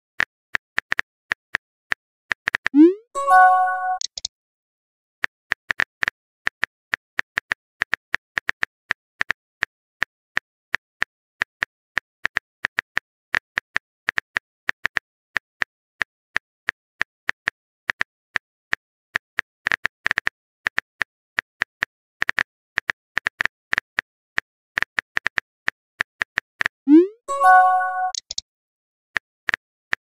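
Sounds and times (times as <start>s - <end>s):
phone keyboard typing clicks: 2.8s - 4.3s, 26.9s - 28.4s.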